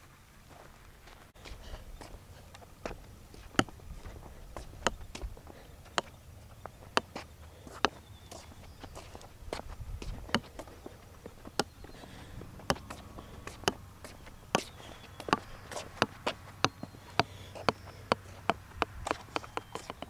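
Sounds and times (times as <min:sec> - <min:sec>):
golf ball bouncing on concrete: 0:01.5 - 0:20.0.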